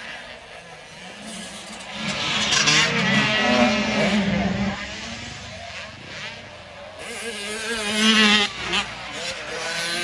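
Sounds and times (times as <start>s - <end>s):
dirt bike engines revving: 0.0s - 10.0s.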